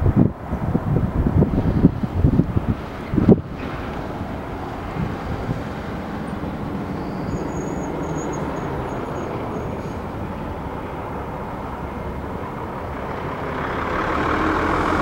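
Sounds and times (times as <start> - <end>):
freight train rumbling: 0.0 - 15.0.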